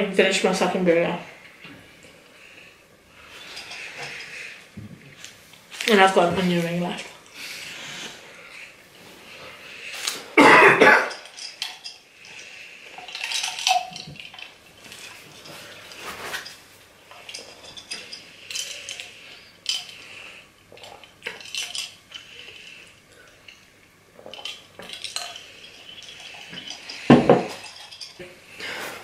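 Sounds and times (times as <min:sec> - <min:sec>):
glass clicks and clinks: 0:13.0 - 0:14.6.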